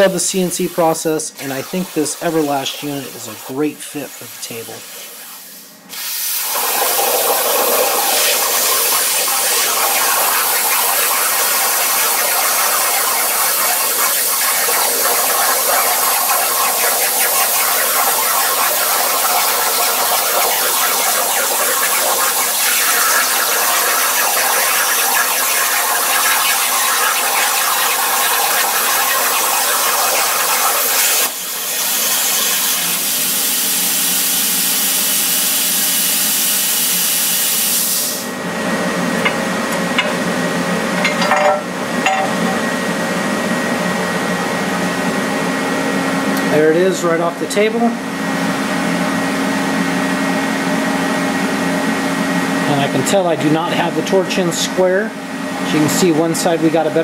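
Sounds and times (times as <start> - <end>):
airflow hiss: 0.0 - 27.6
plasma cutter hissing: 0.0 - 38.3.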